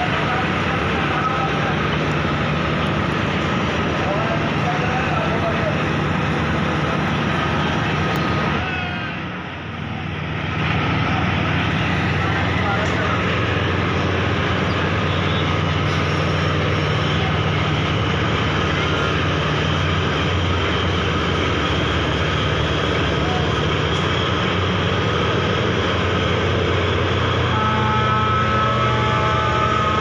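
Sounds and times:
diesel engines droning: 0:00.0 - 0:30.0.

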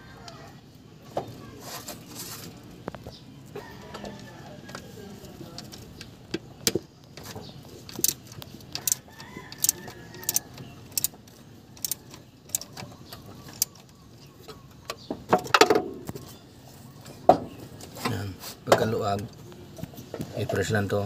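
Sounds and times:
socket ratchet clicking: 0:08.8 - 0:11.1, 0:11.8 - 0:12.7.

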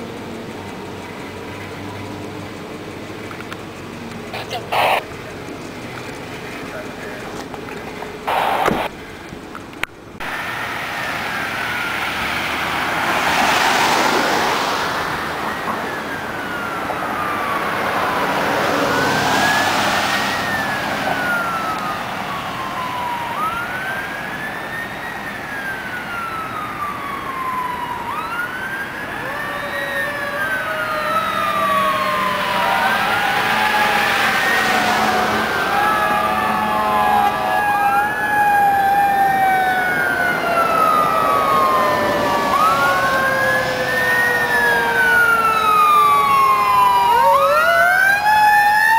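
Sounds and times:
lower siren: 0:00.0 - 0:07.4, 0:08.2 - 0:09.0, 0:10.2 - 0:48.9
fire sirens wailing: 0:00.0 - 0:09.4, 0:10.1 - 0:48.9.

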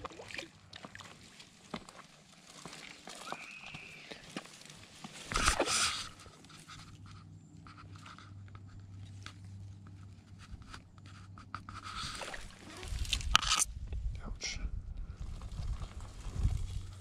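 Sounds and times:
clothing and reeds rustling: 0:00.8 - 0:13.4, 0:15.2 - 0:17.0.

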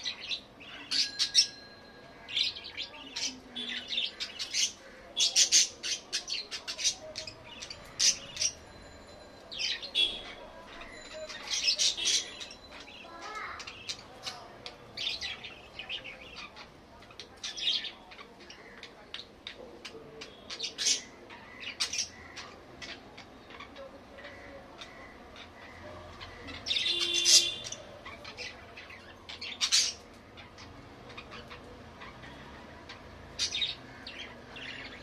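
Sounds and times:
budgerigars chirping: 0:09.6 - 0:12.9, 0:15.0 - 0:35.0.

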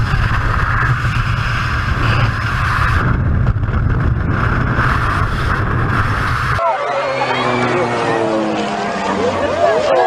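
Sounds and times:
wind roaring across microphone: 0:00.0 - 0:06.6.

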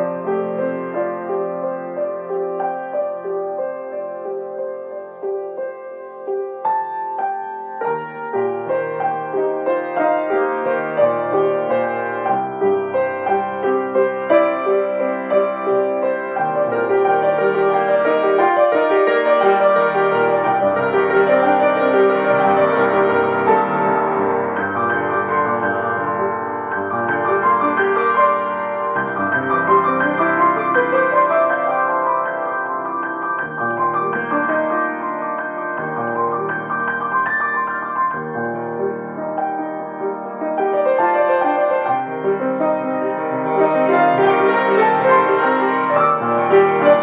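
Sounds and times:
solo piano improvisation: 0:00.0 - 0:47.0.

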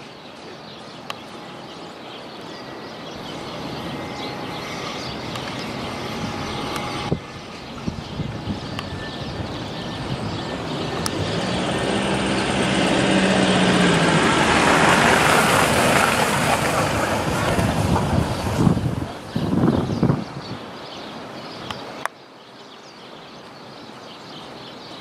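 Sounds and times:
vehicle engine passing by: 0:03.0 - 0:19.2.

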